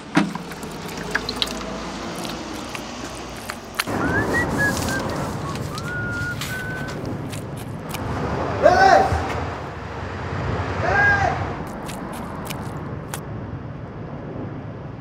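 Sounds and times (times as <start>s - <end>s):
paste brush swishing on paper: 0.5s - 8.0s
man whistling a tune: 3.9s - 7.0s.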